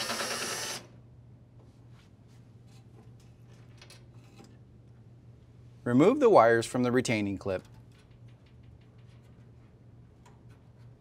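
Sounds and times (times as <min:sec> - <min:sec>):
drill driver spinning: 0:00.0 - 0:00.8.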